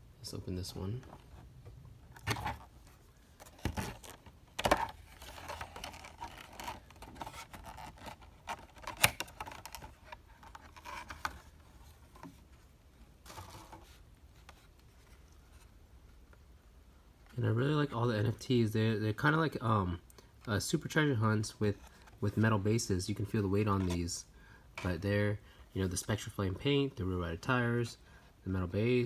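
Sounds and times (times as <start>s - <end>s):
plastic scraping and rustling: 0.9s - 15.8s.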